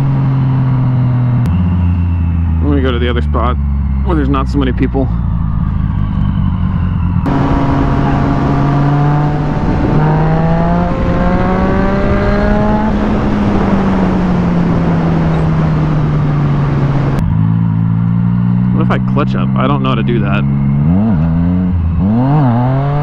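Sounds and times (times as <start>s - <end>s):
motorcycle engine at road speed: 0.0s - 23.0s
wind rush on microphone: 6.1s - 17.3s.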